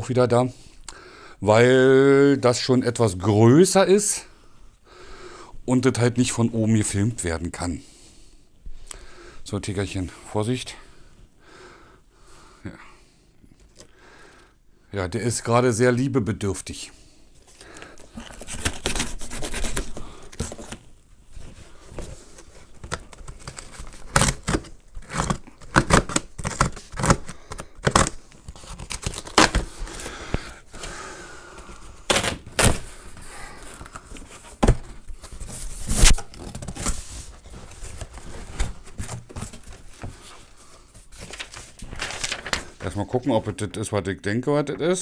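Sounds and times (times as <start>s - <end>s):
cardboard rustling: 17.4s - 43.1s
packing tape tearing: 18.0s - 20.8s, 22.4s - 30.2s, 32.1s - 33.0s, 35.8s - 37.0s
cardboard knocks and scrapes: 34.5s - 40.2s.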